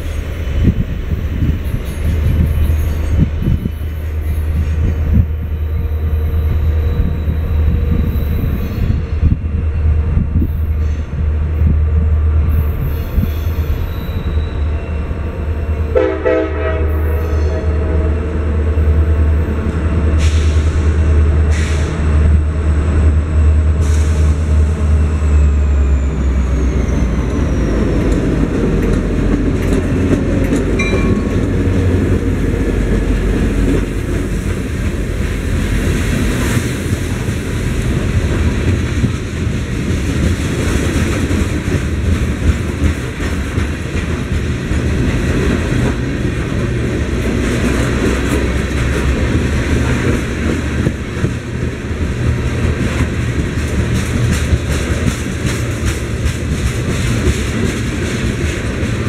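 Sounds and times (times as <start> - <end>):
diesel locomotive rumbling: 0.0 - 59.0
train horn: 15.9 - 18.4.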